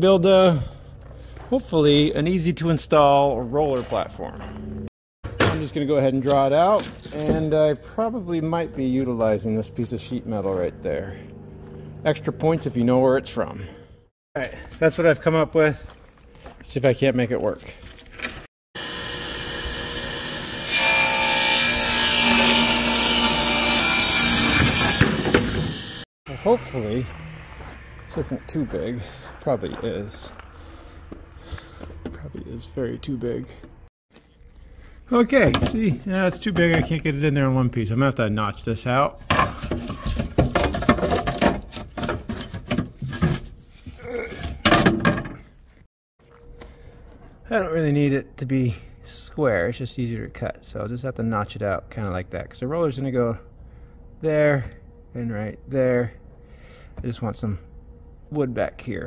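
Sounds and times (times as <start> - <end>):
power saw cutting wood: 18.8 - 28.0.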